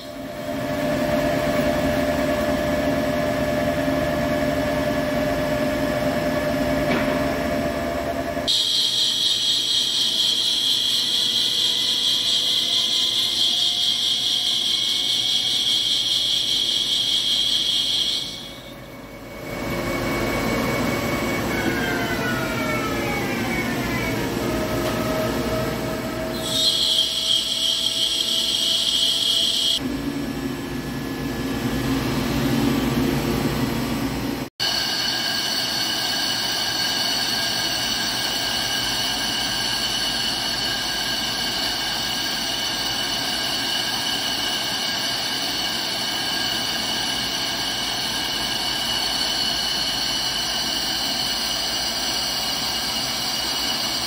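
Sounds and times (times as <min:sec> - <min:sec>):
high-pitched machine noise: 0:00.0 - 0:33.2, 0:34.3 - 0:54.0
lathe spindle whine: 0:00.0 - 0:33.3, 0:34.5 - 0:54.0
boring bar cutting iron: 0:34.6 - 0:54.0.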